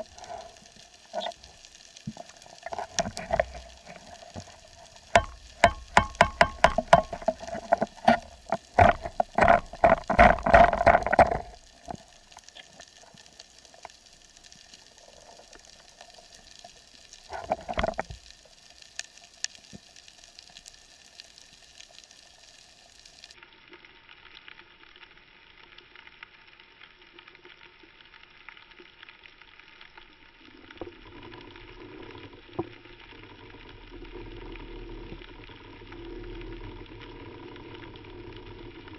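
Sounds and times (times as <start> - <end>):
underwater crackling hiss: 0.0 - 23.4, 28.2 - 38.9
sharp clicks and knocks: 2.1 - 12.0.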